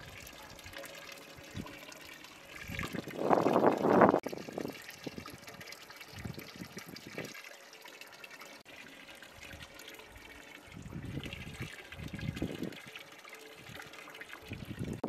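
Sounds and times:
water pouring into metal pot: 0.0 - 15.0.

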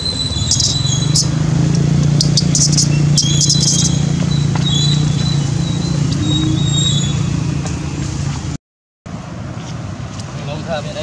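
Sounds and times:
monkey squeaks: 0.0 - 1.4, 2.1 - 7.2
low engine hum: 0.0 - 11.0.

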